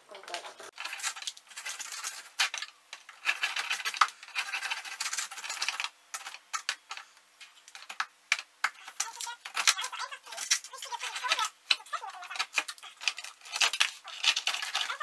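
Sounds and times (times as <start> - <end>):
knife scraping ice: 8.8 - 15.0.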